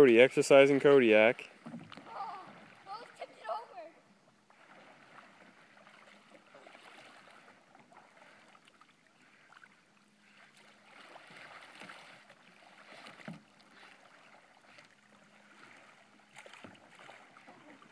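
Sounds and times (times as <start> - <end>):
water lapping: 0.0 - 17.9
kayak paddle splashes: 0.7 - 17.9
dog swimming: 4.4 - 17.9.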